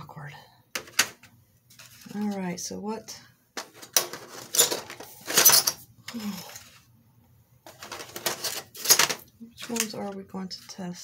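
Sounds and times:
colored pencils rattling in trays: 3.6s - 6.8s, 7.6s - 10.2s.

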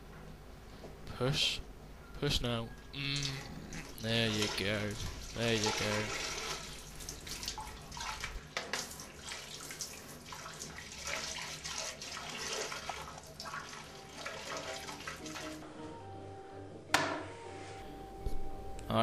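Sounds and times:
urine splashing into toilet water: 3.7s - 15.6s.

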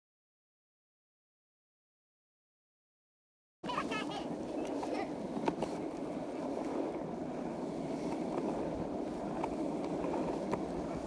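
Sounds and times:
longboard wheels rolling on asphalt: 3.6s - 11.0s.

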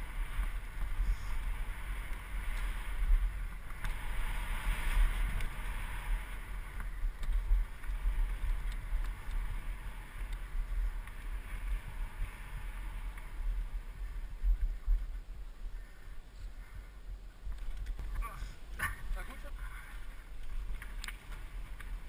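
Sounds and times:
bike rattling over bumps: 0.0s - 16.0s, 17.4s - 22.0s
wind buffeting microphone: 0.0s - 22.0s.

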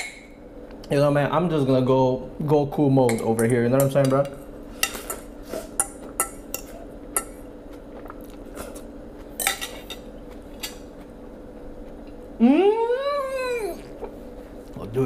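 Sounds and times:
utensil clinking against bowl: 3.1s - 7.4s
man humming with mouth full: 12.4s - 14.1s.

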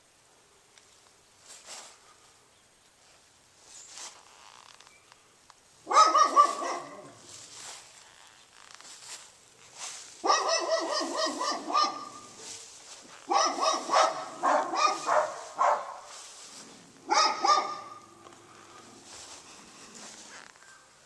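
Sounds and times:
dog barking: 5.9s - 7.2s, 10.2s - 12.3s, 13.3s - 16.1s, 17.1s - 18.0s.

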